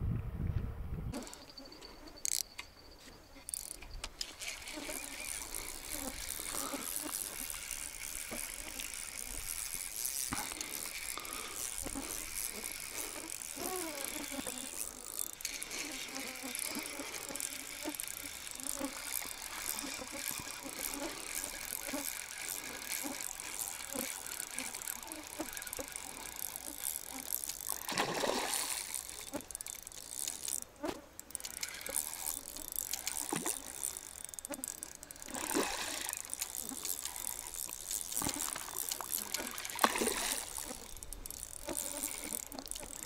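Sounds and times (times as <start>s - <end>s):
low wind rumble: 0.0s - 1.2s
fishing reel clicking: 1.2s - 2.8s, 3.4s - 43.0s.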